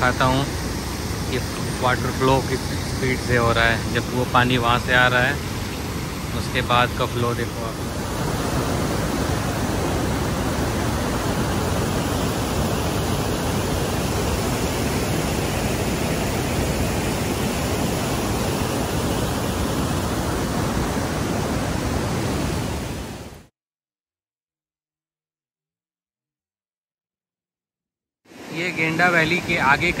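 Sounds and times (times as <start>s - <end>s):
river water rushing: 0.5s - 23.2s.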